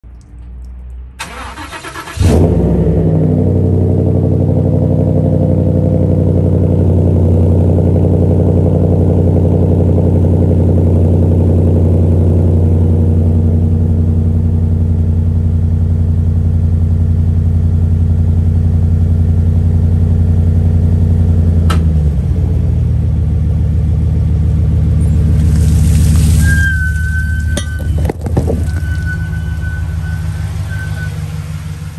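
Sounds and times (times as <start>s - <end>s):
truck engine cranking: 0.1s - 2.9s, 24.9s - 31.9s
click: 21.7s - 21.9s.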